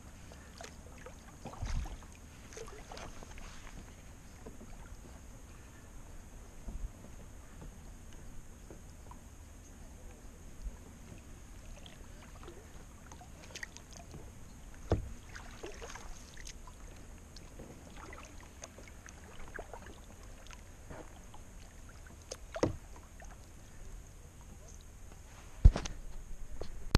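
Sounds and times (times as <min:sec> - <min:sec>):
paddle strokes and splashes: 0:00.0 - 0:26.9
knocks on kayak: 0:14.8 - 0:15.2, 0:22.6 - 0:22.8.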